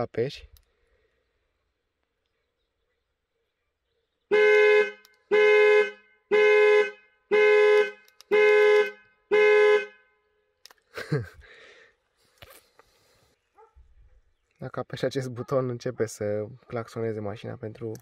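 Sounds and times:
car horn honking: 0:04.3 - 0:10.3.

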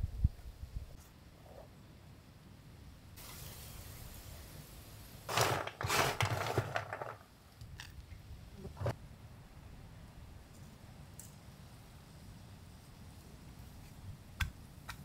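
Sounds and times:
faint hiss: 0:00.0 - 0:06.2, 0:07.1 - 0:15.0.

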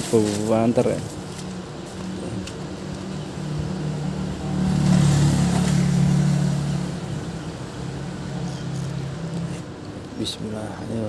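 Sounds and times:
low traffic engine hum: 0:00.0 - 0:11.0
vehicle passing: 0:00.7 - 0:09.8.

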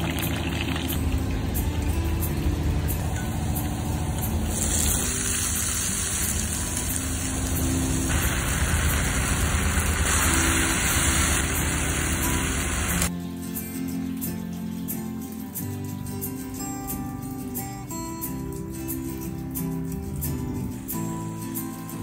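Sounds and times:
low steady rumble: 0:00.0 - 0:13.1
tomatoes sizzling in oil: 0:03.5 - 0:13.1.

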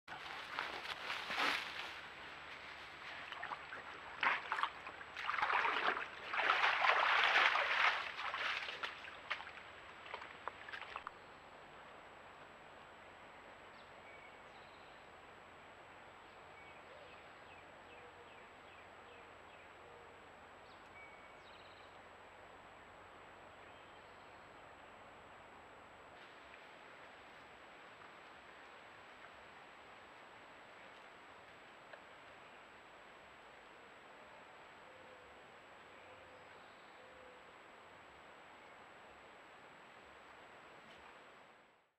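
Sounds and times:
vegetation rustling: 0:00.1 - 0:04.6
bear splashing in creek: 0:00.1 - 0:11.1
steady low hiss: 0:00.1 - 0:41.9
faint bird chirps: 0:16.2 - 0:22.0.

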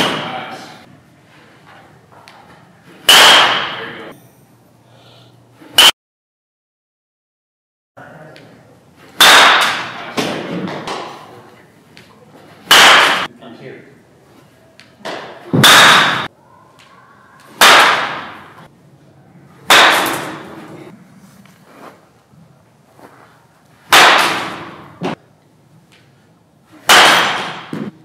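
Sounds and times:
bat cracking on balls: 0:09.1 - 0:11.3, 0:12.0 - 0:13.3, 0:14.9 - 0:18.7, 0:19.6 - 0:20.5, 0:23.9 - 0:25.2, 0:26.8 - 0:28.0.

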